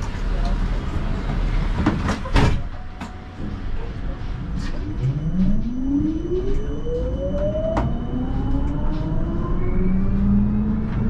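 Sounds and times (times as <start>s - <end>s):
wheels rumbling on rail: 0.0s - 11.0s
tram motor whine rising: 3.2s - 11.0s.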